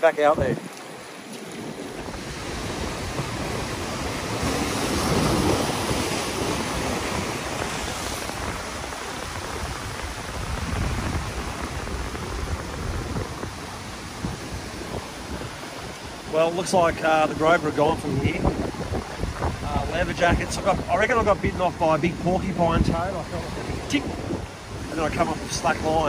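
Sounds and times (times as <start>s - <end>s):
ocean surf breaking on rocks: 0.0s - 26.0s.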